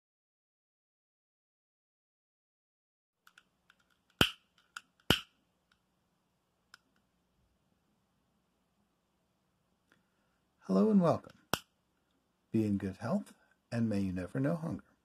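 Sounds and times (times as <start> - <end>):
sharp clicks: 3.2 - 5.8
faint hum: 5.3 - 15.0.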